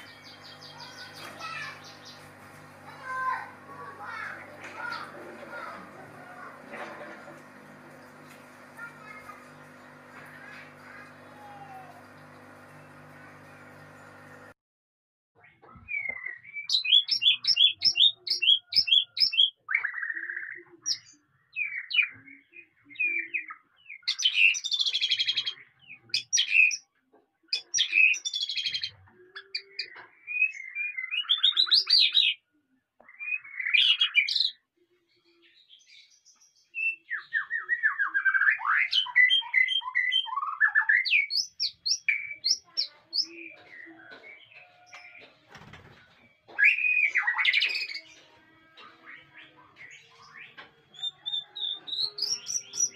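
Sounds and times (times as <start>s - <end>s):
bird singing whistled song: 36.8s - 42.6s, 46.6s - 47.9s.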